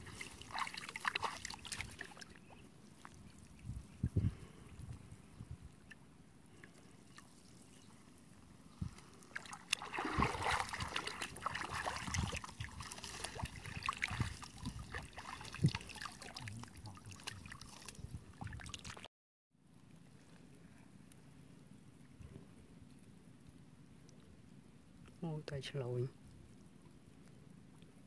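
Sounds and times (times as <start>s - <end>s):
water splashing and trickling: 0.0s - 4.9s, 5.6s - 19.1s.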